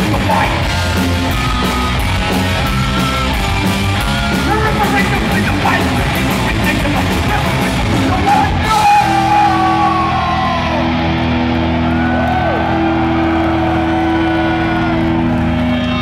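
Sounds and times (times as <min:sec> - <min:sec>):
audience shouts and whoops: 0:08.6 - 0:16.0.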